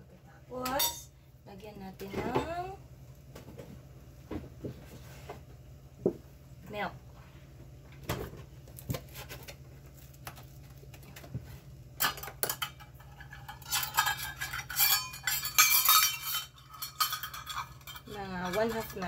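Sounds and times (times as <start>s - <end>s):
metal measuring cups clattering: 12.0s - 19.0s.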